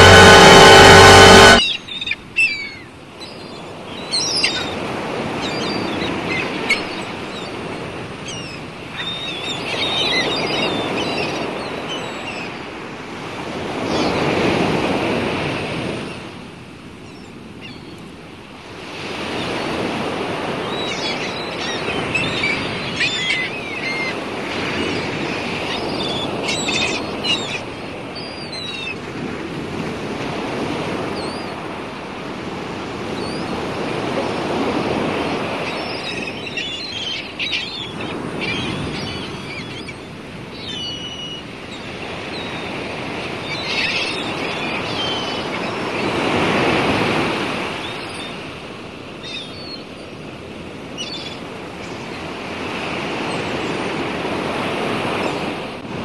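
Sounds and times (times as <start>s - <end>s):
ocean waves washing: 0.0s - 1.7s, 18.2s - 40.7s, 41.4s - 56.0s
wind: 0.0s - 56.0s.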